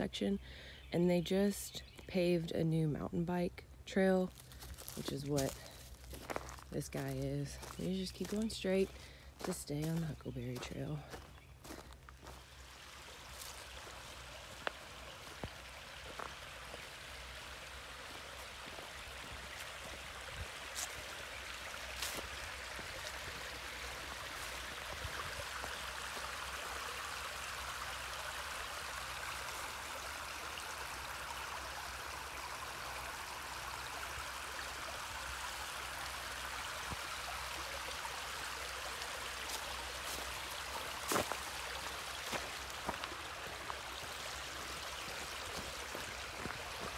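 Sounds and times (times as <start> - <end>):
creek babbling over rocks: 2.9 - 46.9.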